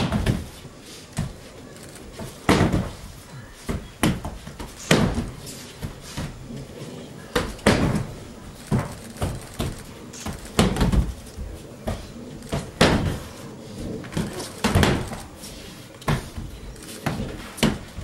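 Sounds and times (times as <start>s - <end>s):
bodies thumping on mat: 2.1s - 6.4s, 7.4s - 13.3s.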